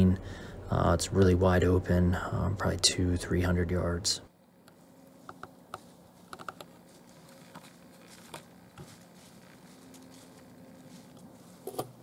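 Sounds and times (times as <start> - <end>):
crackling in dry leaf litter: 6.7 - 11.8.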